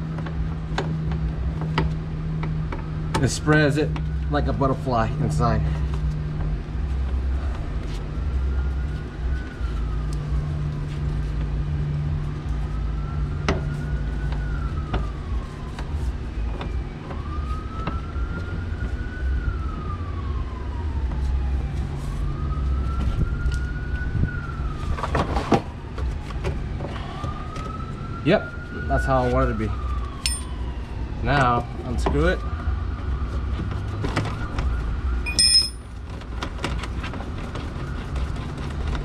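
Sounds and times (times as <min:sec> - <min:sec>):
siren wailing: 0:06.6 - 0:36.0.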